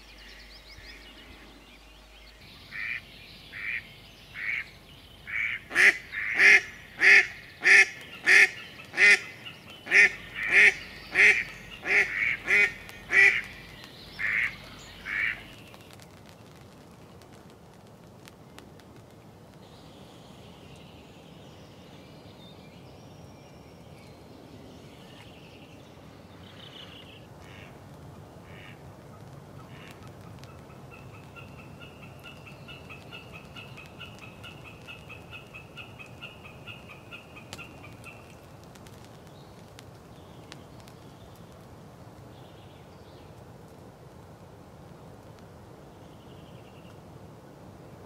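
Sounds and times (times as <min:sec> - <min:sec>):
birds calling: 0:00.0 - 0:16.0, 0:29.6 - 0:38.5
fast repeated bird call notes: 0:05.3 - 0:15.5.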